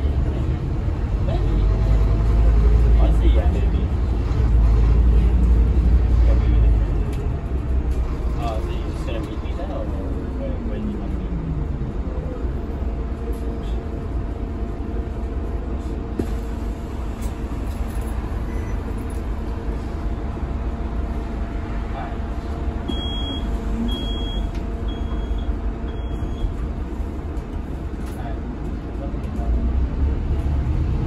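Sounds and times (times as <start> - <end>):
bus engine and road rumble: 0.0 - 31.0
short high beeps: 22.9 - 26.5.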